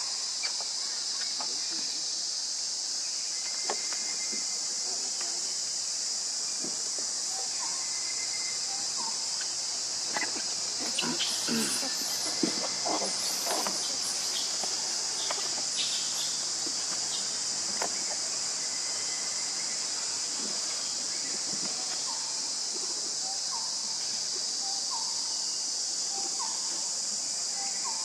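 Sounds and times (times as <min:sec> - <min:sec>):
high-pitched insect drone: 0:00.0 - 0:28.0.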